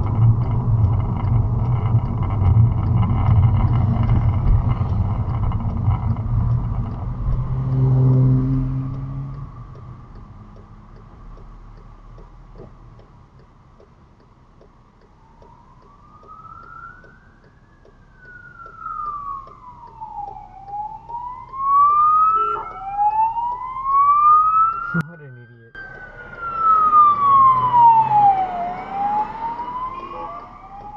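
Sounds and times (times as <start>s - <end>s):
steady light ticking: 0.0s - 25.0s, 25.8s - 30.9s
police siren wailing: 15.1s - 30.9s.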